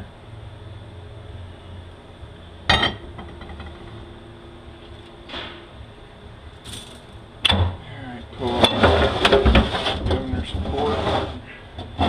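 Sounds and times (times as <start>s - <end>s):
low shop hum: 0.0s - 12.0s
metallic clank with ringing: 2.7s - 3.8s.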